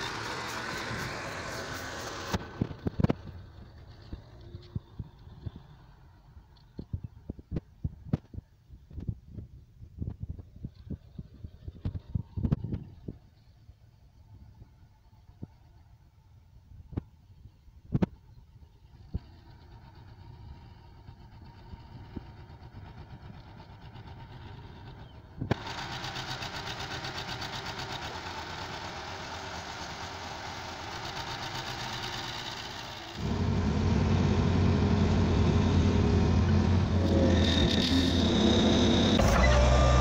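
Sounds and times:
tractor engine running: 0.0s - 7.7s, 18.8s - 40.0s
deep engine close by: 0.0s - 8.4s, 18.0s - 40.0s.

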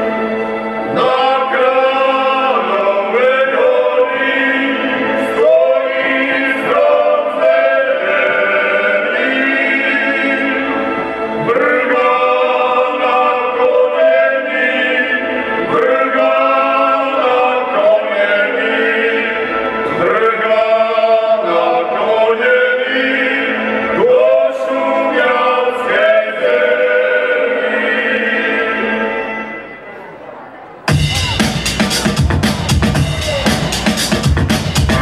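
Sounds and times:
men singing folk song: 0.9s - 10.8s, 11.4s - 29.2s.

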